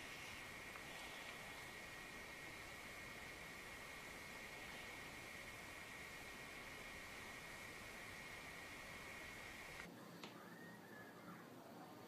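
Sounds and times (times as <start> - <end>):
faint click: 9.7 - 10.4.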